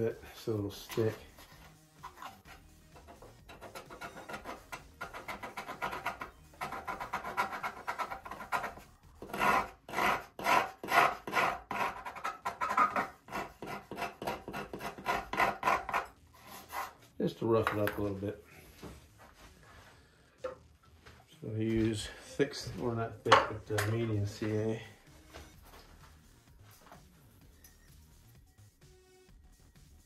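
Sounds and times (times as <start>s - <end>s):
knife blade scraping paint: 0.8s - 17.0s.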